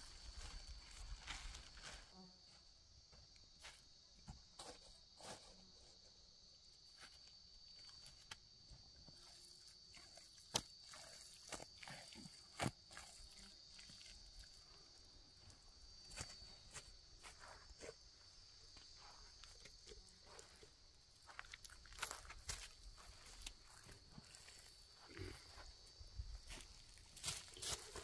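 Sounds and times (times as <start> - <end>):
soft scuffs on dry earth: 0.0 - 2.8, 15.3 - 28.0
faint high insect buzz: 0.0 - 28.0.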